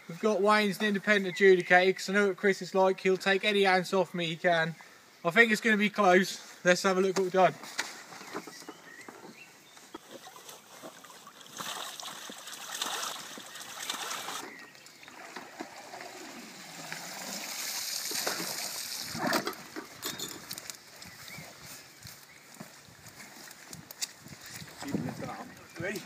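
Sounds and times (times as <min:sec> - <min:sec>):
water splashing through mesh: 0:10.2 - 0:19.6.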